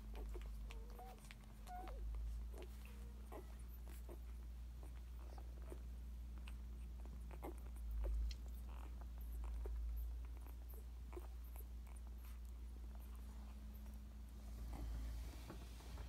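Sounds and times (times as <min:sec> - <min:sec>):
puppies suckling wet clicks: 0:00.0 - 0:14.3
low steady hum: 0:00.0 - 0:16.0
puppy squeaks: 0:00.1 - 0:05.8.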